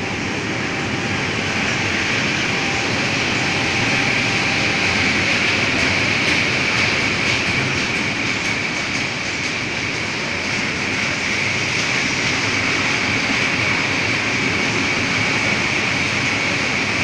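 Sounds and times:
high ringing tone: 0.0 - 6.2
train wheels rolling on rails: 0.0 - 17.0.

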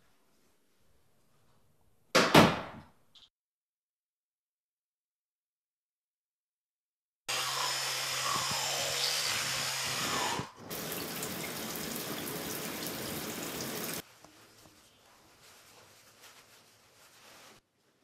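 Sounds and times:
shower spraying water onto tiles: 8.3 - 14.1.

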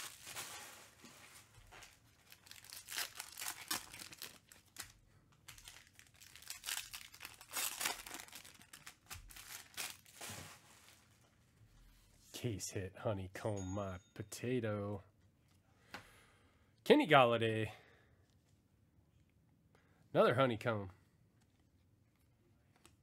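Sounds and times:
foil wrappers tearing and crinkling: 0.0 - 10.7.

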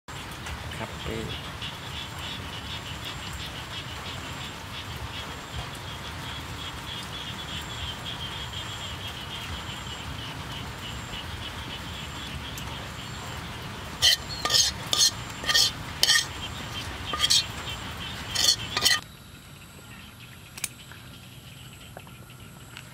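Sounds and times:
insect chirring: 1.3 - 22.9
metal utensil scraping a wok: 14.0 - 19.0.

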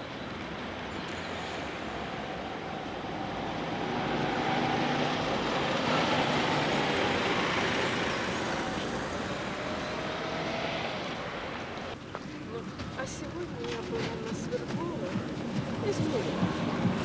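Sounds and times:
steady traffic hum: 0.0 - 17.0
car passing by: 1.1 - 12.0.

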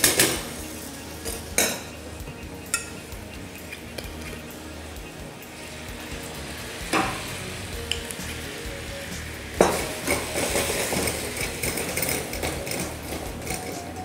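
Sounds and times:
metal pan clanking on grate: 0.0 - 4.5, 9.6 - 14.0
food sizzling in a pan: 0.0 - 14.0
pan knock: 9.6 - 11.1.

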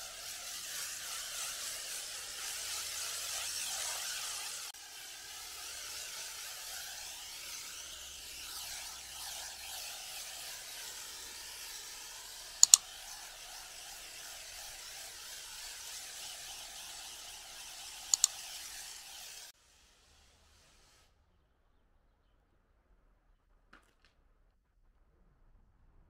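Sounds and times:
foam fizzing and crackling: 0.0 - 19.8
double mouse-click effect: 12.6 - 12.8, 18.1 - 18.4.

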